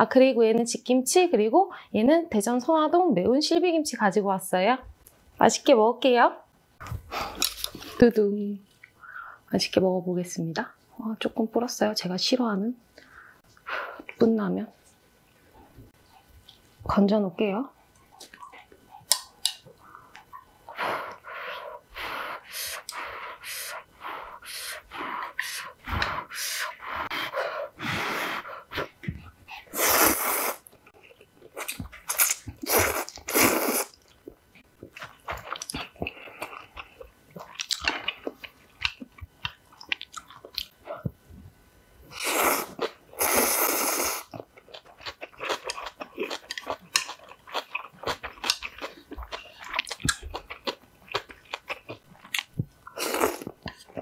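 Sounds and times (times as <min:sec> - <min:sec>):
slurping noodles: 0:29.7 - 0:30.6, 0:32.1 - 0:34.0
wet chewing and smacking: 0:33.9 - 0:40.8, 0:44.3 - 0:54.0.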